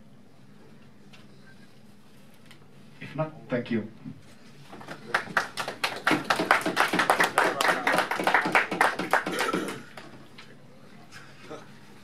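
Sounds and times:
small group clapping: 4.7s - 10.3s.

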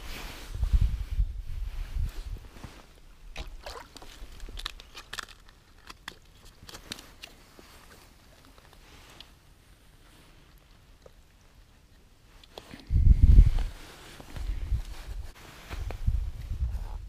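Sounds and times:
clothing rustling: 13.4s - 16.6s.

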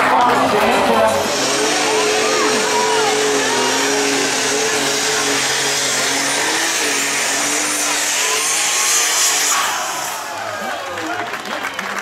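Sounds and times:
tractor engine loud drone: 0.0s - 12.0s.

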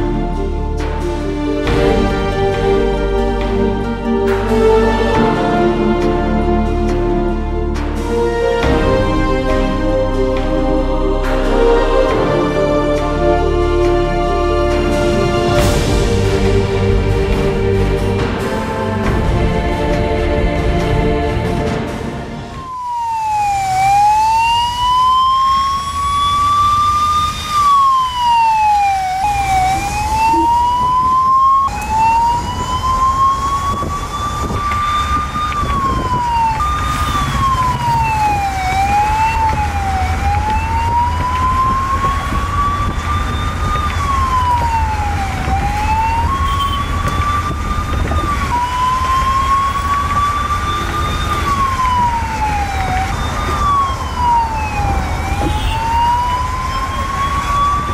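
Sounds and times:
traffic and engine rumble: 0.0s - 57.9s
siren wailing: 22.5s - 57.9s.

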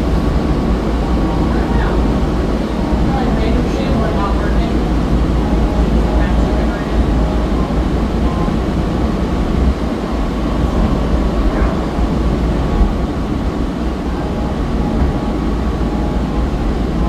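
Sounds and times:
tram rumbling with faint whine: 0.0s - 17.0s.

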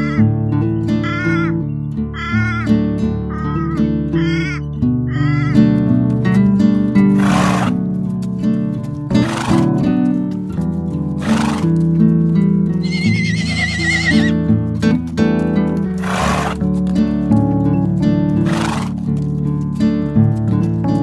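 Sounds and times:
zebra whinnying: 0.0s - 0.3s, 0.9s - 5.8s, 7.1s - 7.8s, 9.2s - 9.7s, 11.2s - 11.7s, 12.8s - 14.5s, 16.0s - 16.6s, 18.4s - 19.0s.

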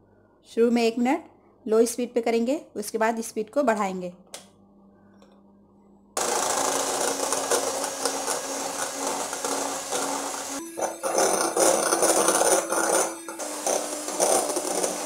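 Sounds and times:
electric hand mixer whipping cream: 6.2s - 15.0s.

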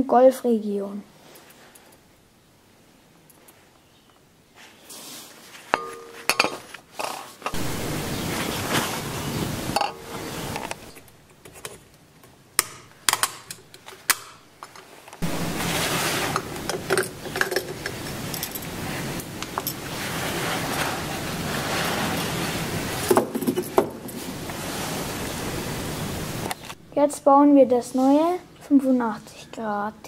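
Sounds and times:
steady hiss: 4.4s - 11.7s, 12.5s - 28.4s
metallic clicks and clinks: 16.7s - 19.8s.

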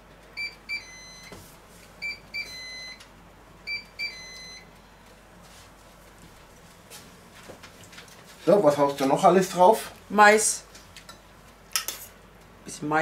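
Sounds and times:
electric grill beeps: 0.3s - 1.4s, 2.0s - 4.7s.

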